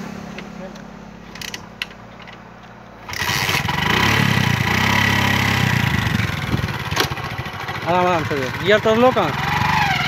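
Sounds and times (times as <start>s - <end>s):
motorcycle engine running: 3.0s - 10.0s.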